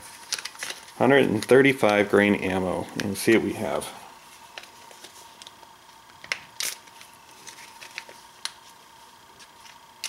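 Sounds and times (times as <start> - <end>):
plastic bags crinkling: 0.0 - 2.1, 6.2 - 8.8.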